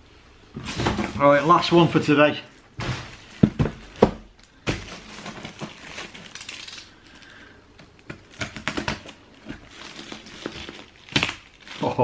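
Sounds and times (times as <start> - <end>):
cardboard box handling knocks: 2.8 - 5.0.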